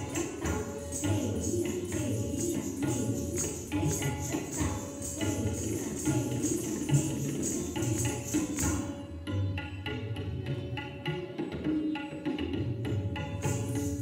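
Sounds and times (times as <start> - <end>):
high shimmer: 0.0 - 9.1
tabla playing rhythm: 0.0 - 14.0.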